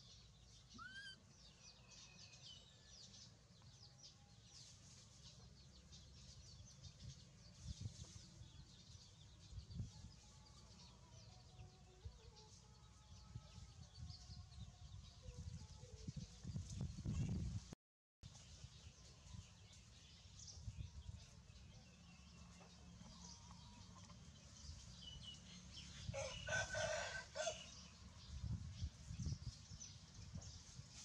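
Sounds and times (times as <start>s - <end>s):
rooster crowing: 26.2s - 27.8s.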